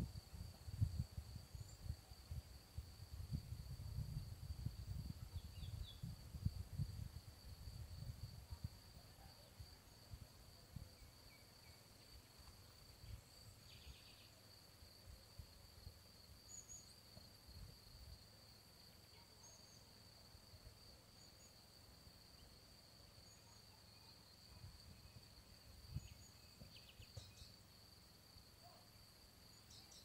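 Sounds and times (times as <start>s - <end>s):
high-pitched insect trill: 10.9s - 28.8s.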